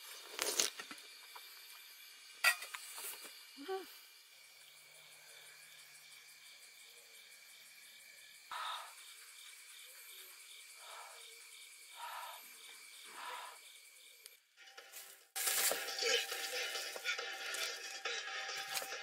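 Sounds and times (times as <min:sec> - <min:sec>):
crickets chirping: 0:00.0 - 0:19.0
film soundtrack: 0:14.6 - 0:19.0.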